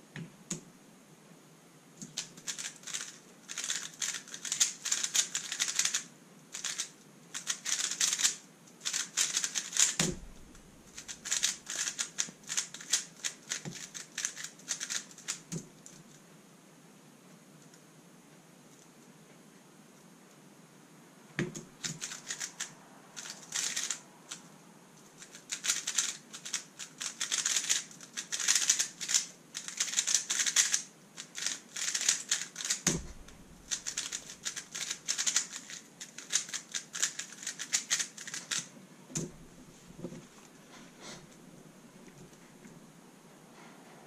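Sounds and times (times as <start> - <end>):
puzzle cube clicking: 2.0 - 15.6, 21.4 - 24.4, 25.1 - 39.3
dull thumps: 10.0 - 10.8, 32.9 - 33.8.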